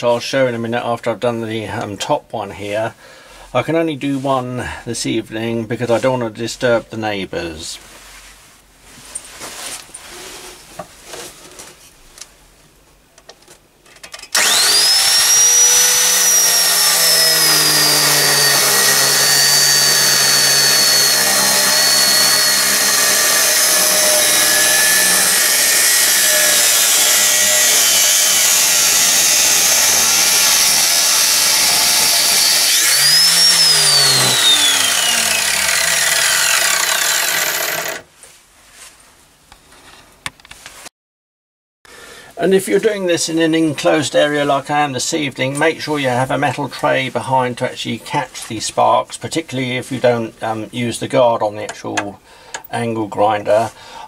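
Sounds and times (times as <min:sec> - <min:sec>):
angle grinder cutting steel: 0:14.3 - 0:38.1.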